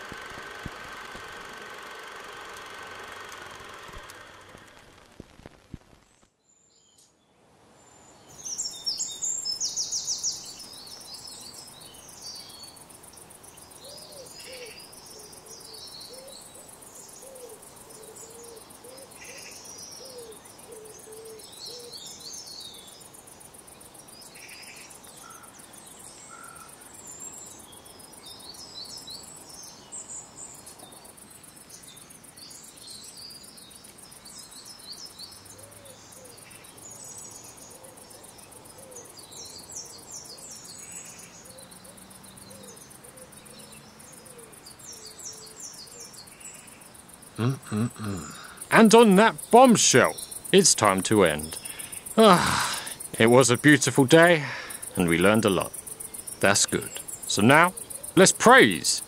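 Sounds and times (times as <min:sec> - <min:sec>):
birds chirping: 0:08.3 - 0:23.2, 0:24.0 - 0:59.0
bird trill: 0:32.5 - 0:59.0.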